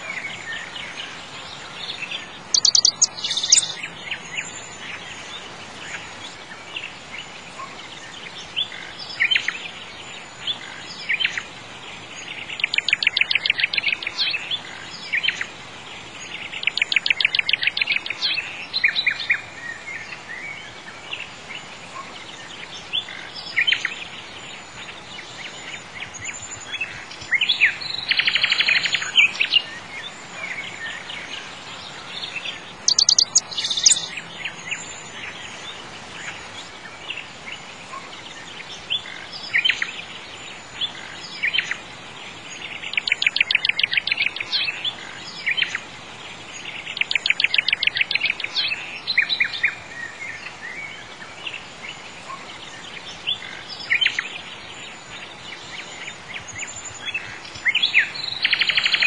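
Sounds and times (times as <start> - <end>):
birds chirping and singing: 0.0 - 59.0
faint background hiss: 0.0 - 59.0
bird trills: 2.5 - 3.8, 32.9 - 34.1.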